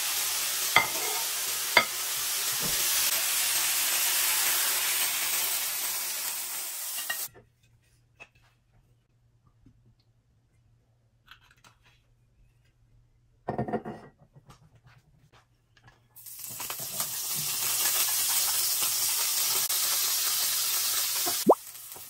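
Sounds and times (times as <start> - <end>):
vegetables sizzling in hot oil: 0.0 - 7.3, 16.2 - 22.0.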